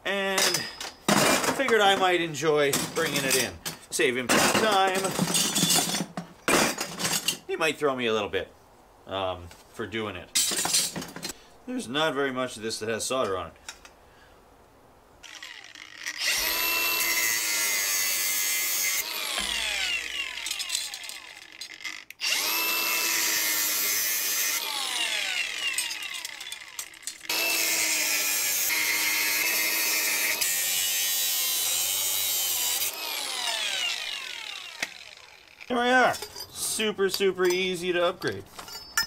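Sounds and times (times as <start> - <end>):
angle grinder cutting copper pipe: 15.2 - 35.9.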